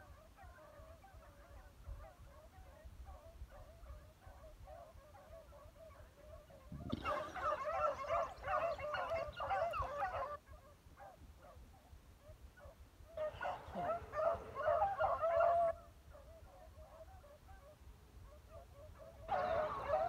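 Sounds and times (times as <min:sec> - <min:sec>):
dogs baying: 0:06.5 - 0:10.4, 0:13.2 - 0:17.4, 0:18.5 - 0:20.0.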